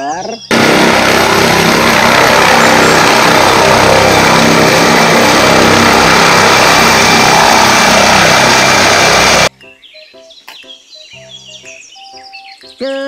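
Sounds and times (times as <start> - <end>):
helicopter turbine and rotor: 0.5 - 9.5.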